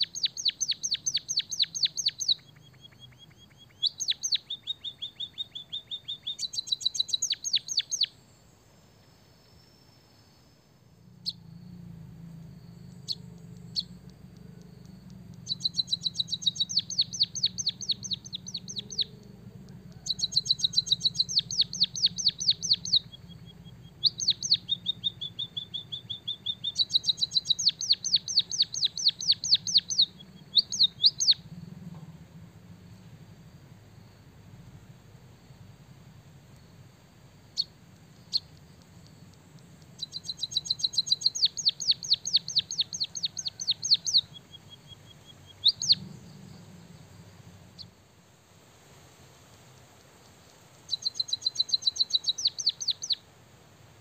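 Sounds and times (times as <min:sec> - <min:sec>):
bird singing trills: 0:00.0 - 0:48.0, 0:50.9 - 0:53.2.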